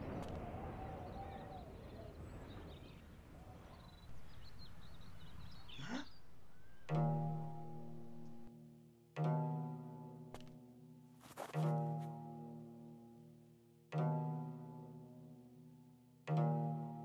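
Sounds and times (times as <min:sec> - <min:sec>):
faint bird chirps: 0:00.0 - 0:08.4.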